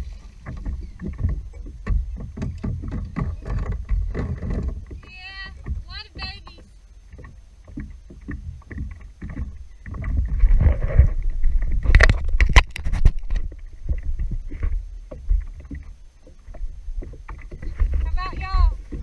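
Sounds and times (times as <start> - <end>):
water sloshing and splashing: 0.0 - 19.0
wind rumble on microphone: 7.7 - 19.0.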